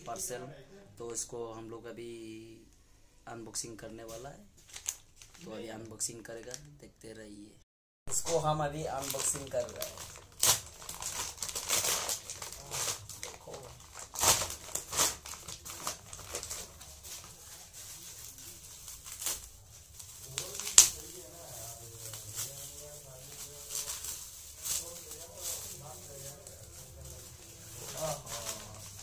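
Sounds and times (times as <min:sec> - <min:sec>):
packaging torn and crumpled: 0:04.6 - 0:05.5, 0:08.2 - 0:29.0.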